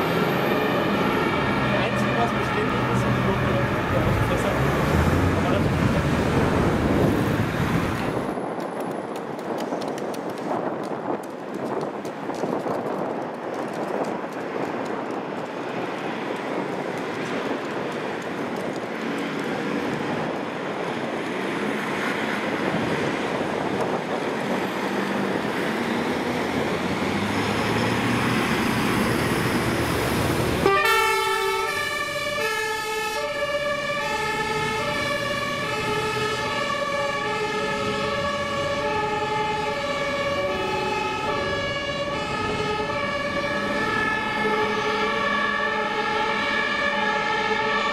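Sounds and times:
two-tone sirens: 0:00.0 - 0:08.5, 0:15.7 - 0:47.9
diesel engines accelerating: 0:00.0 - 0:09.7, 0:14.4 - 0:47.9.

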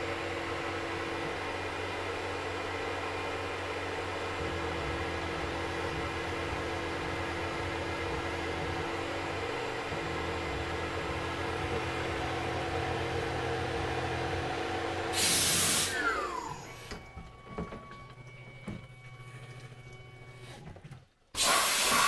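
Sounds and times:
mill spindle hum and whine: 0:00.0 - 0:20.9
hiss of spray: 0:15.2 - 0:15.9, 0:21.4 - 0:22.0.

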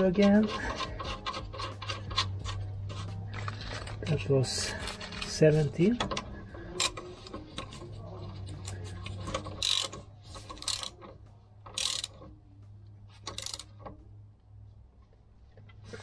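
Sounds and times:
ratchet wrench clicking: 0:00.4 - 0:02.6, 0:09.5 - 0:11.1, 0:11.7 - 0:12.3, 0:13.2 - 0:13.8.

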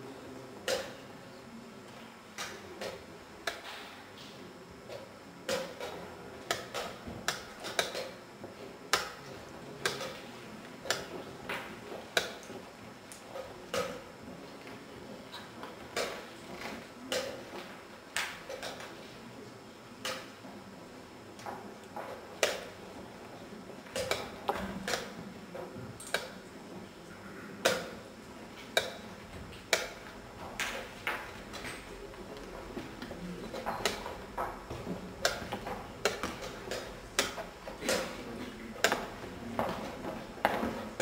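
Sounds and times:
chess pieces knocking on board: 0:29.7 - 0:38.2.

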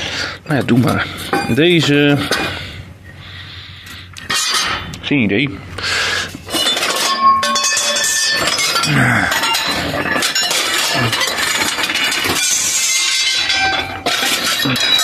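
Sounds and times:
metal parts clinking: 0:04.2 - 0:04.8, 0:06.5 - 0:15.0.

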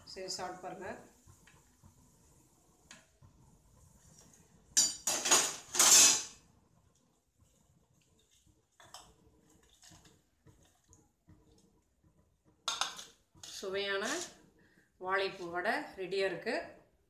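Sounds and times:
metal utensils clattering: 0:04.8 - 0:06.3.

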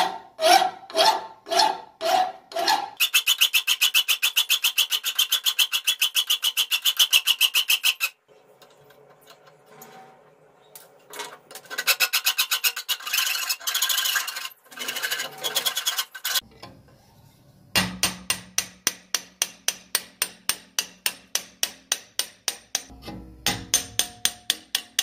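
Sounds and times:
metal file rasping: 0:00.4 - 0:08.1, 0:11.6 - 0:16.4
hammer tapping metal punch: 0:17.8 - 0:25.0.

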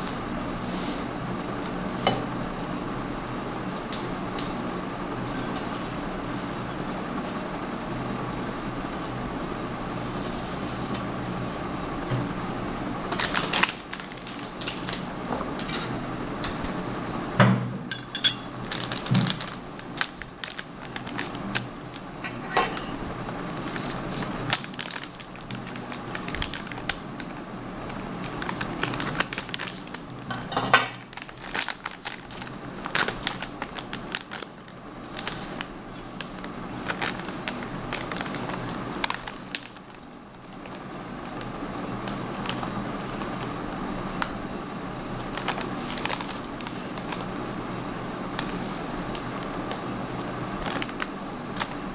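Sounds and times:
plastic packet crinkling: 0:13.1 - 0:15.1, 0:18.6 - 0:22.1, 0:23.3 - 0:30.3, 0:31.0 - 0:43.5, 0:45.2 - 0:47.5, 0:48.3 - 0:51.9.

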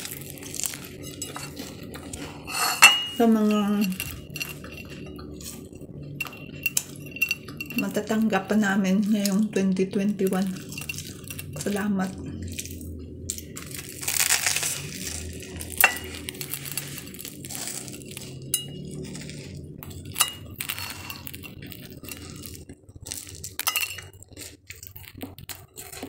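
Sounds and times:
ceramic plate clinking: 0:00.9 - 0:05.2, 0:06.2 - 0:07.9, 0:15.7 - 0:16.3.

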